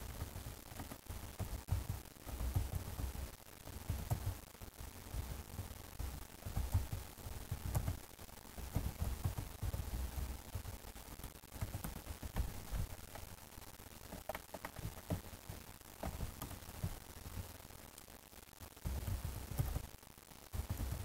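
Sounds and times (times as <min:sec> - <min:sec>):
keyboard typing: 0:00.2 - 0:04.4, 0:05.2 - 0:08.0, 0:08.6 - 0:13.3, 0:14.1 - 0:17.4, 0:18.9 - 0:19.9, 0:20.6 - 0:21.0.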